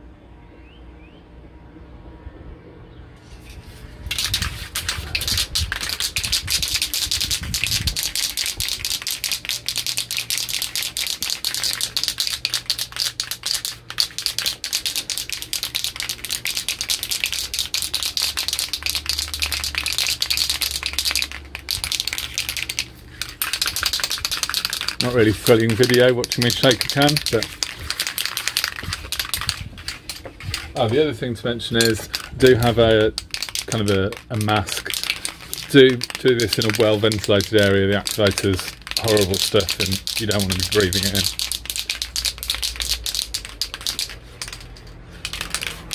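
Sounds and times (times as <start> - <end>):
aerosol can ball rattling: 4.1 - 31.0, 31.7 - 45.9.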